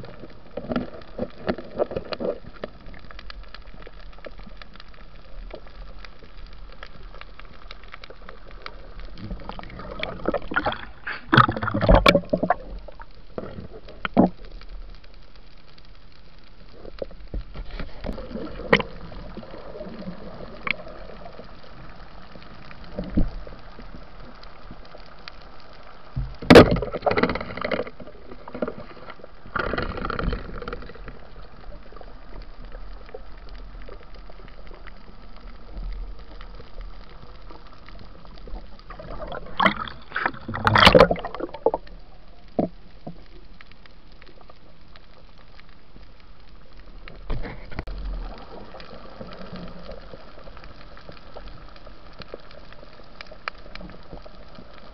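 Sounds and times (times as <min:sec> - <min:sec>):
water gurgling and sloshing: 0:00.0 - 0:54.9.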